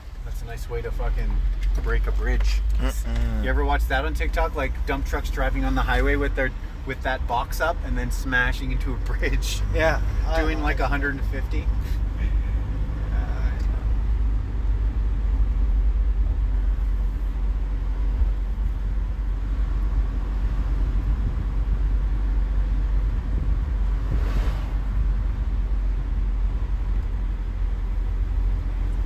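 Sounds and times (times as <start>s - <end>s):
vehicle engine and tyre rumble: 0.0s - 29.0s
brief whoosh: 24.0s - 25.1s.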